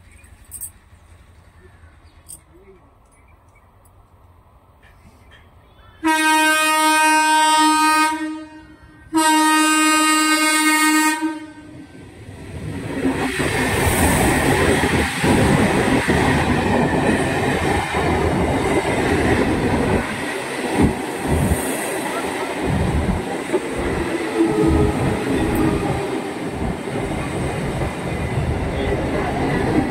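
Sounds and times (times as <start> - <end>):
train horn blasts: 6.0 - 11.8
train wheels clattering on rails: 12.8 - 29.9.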